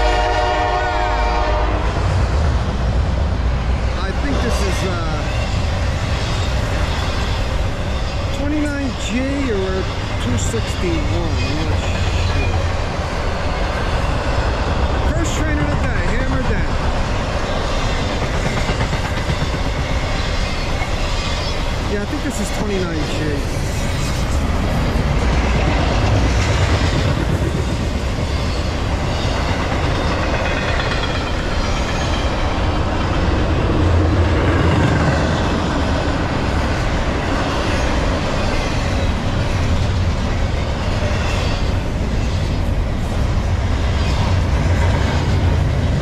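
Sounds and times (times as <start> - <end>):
freight train wheels rumbling: 0.0 - 46.0.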